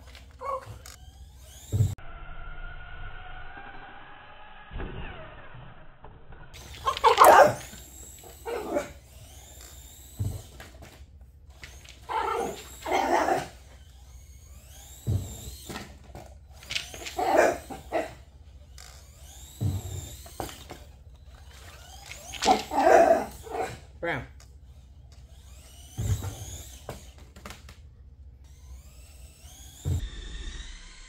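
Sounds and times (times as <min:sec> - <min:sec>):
dog barking: 0:06.8 - 0:07.7, 0:08.4 - 0:08.9, 0:12.1 - 0:13.5, 0:17.2 - 0:18.2, 0:22.5 - 0:23.8.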